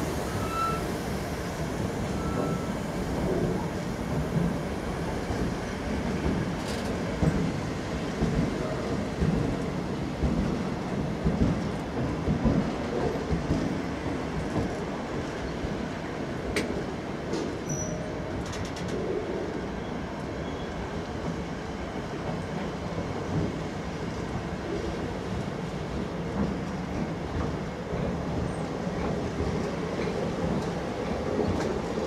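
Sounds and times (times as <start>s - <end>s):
train wheels rumbling on track: 0.0s - 32.0s
high wheel squeal: 0.3s - 1.0s, 2.0s - 2.8s.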